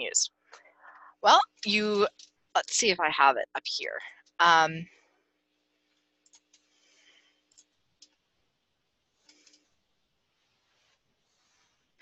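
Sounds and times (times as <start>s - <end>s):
computer mouse clicks: 6.2s - 6.7s, 7.5s - 8.2s, 9.2s - 9.7s.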